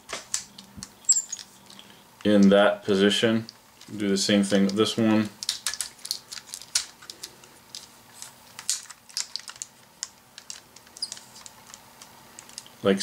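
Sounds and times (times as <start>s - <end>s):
plastic toy parts clicking: 5.4s - 12.7s.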